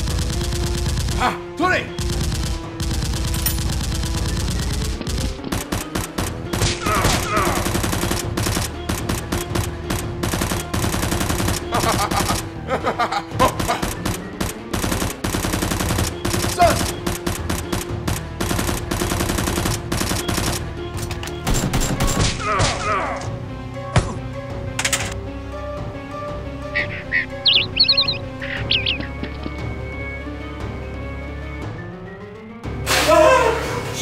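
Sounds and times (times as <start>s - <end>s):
rapid gunfire: 0.0s - 1.4s, 2.0s - 12.5s, 13.4s - 20.7s, 21.5s - 22.4s
background music: 0.0s - 34.0s.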